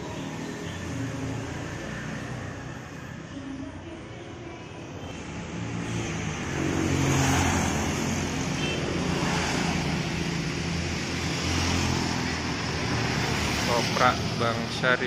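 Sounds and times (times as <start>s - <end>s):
street traffic: 0.0s - 15.0s
motor scooter engine passing: 5.5s - 14.4s.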